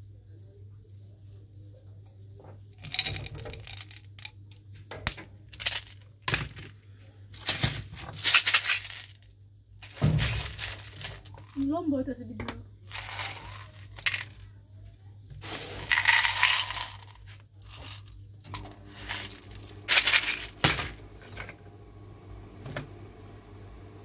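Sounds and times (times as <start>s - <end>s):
candies rattling in plastic jar: 2.8s - 4.4s, 7.4s - 9.2s, 9.8s - 11.7s, 12.9s - 14.5s, 15.4s - 18.2s, 18.9s - 20.9s.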